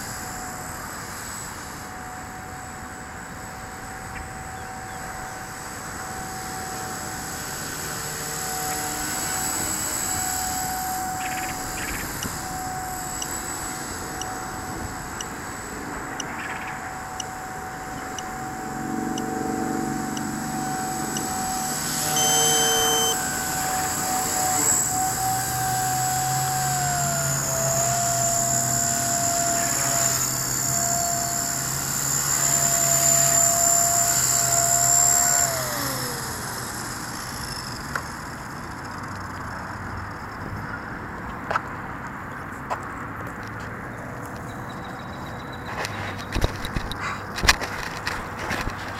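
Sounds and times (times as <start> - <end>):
rc helicopter motor whining: 0.0 - 48.9
short electronic beep: 21.9 - 23.2.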